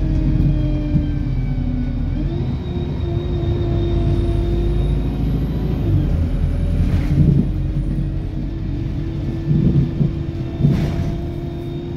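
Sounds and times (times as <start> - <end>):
vehicle engine and tyre rumble: 0.0 - 11.9
low bumps: 6.7 - 11.6.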